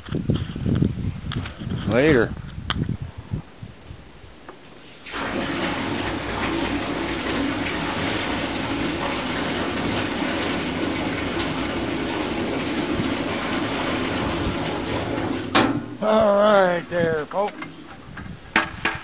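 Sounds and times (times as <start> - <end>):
liquid pouring into metal tank: 5.0 - 16.0.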